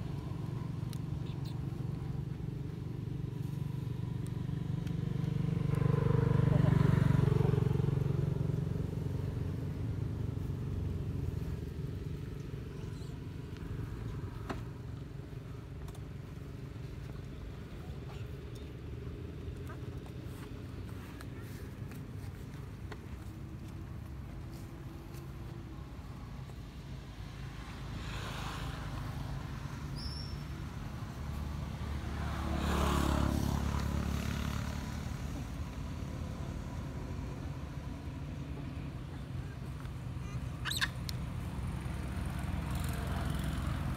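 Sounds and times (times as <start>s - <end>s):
vehicle engine passing by: 0.0s - 15.5s, 27.0s - 43.9s.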